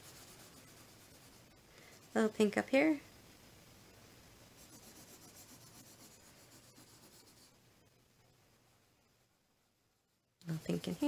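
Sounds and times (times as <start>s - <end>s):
pencil scratching on paper: 0.0s - 2.4s, 4.5s - 7.6s.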